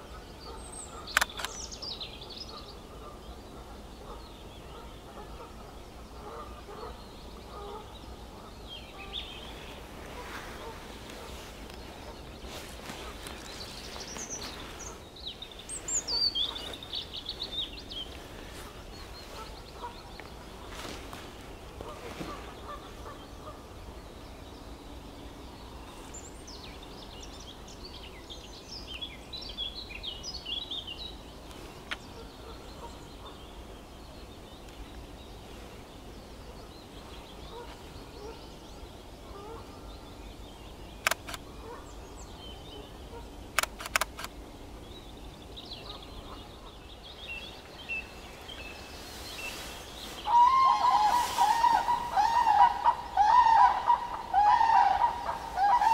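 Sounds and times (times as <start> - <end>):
faint bird song: 0.0 - 55.9
sharp clicks: 1.1 - 1.6, 41.0 - 41.5, 43.5 - 44.4
crane calling: 47.6 - 55.9.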